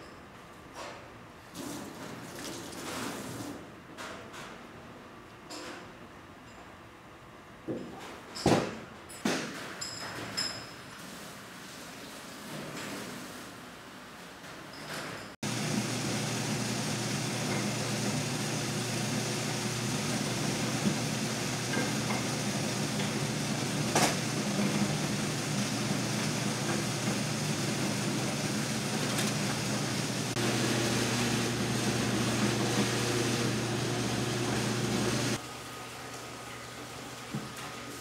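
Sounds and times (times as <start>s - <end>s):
electric food slicer humming: 15.4s - 35.4s.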